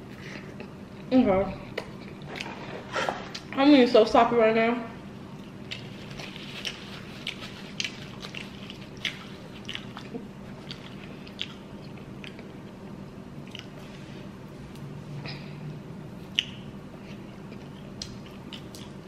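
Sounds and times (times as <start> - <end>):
chewing with wet smacks: 5.4 - 12.8, 13.4 - 13.8, 16.2 - 19.0.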